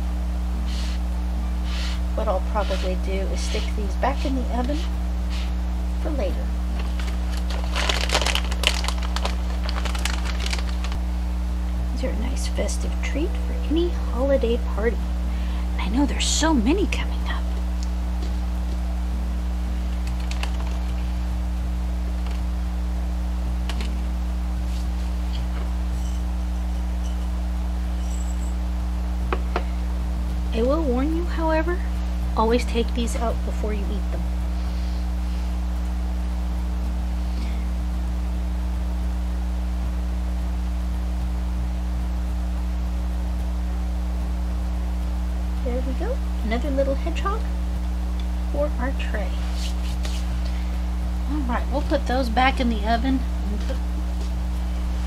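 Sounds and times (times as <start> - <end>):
steady low hum: 0.0 - 55.0
hands rustling in plastic bag: 6.7 - 11.0.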